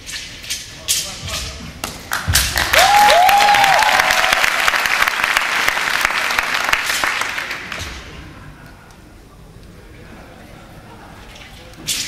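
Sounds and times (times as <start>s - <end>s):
audience applauding: 2.1s - 7.8s.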